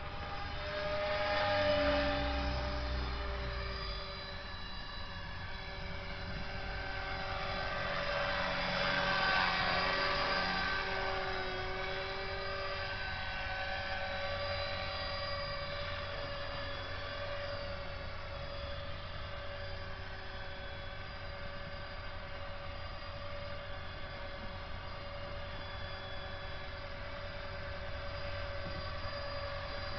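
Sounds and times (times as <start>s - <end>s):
rc helicopter motor whine: 0.0s - 29.9s.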